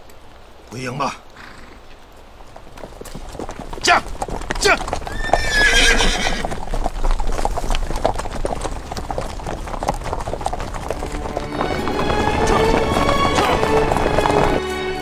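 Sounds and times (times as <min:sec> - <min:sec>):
horse hooves clopping on dirt: 0:00.0 - 0:15.0
horse whinnying: 0:01.4 - 0:01.8, 0:03.7 - 0:08.3.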